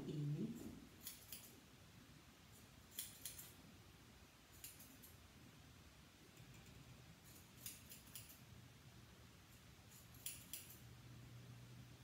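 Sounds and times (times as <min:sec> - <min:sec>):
scissors snipping hair: 0:00.6 - 0:01.6, 0:02.6 - 0:03.6, 0:04.5 - 0:05.2, 0:06.4 - 0:08.4, 0:09.9 - 0:10.9.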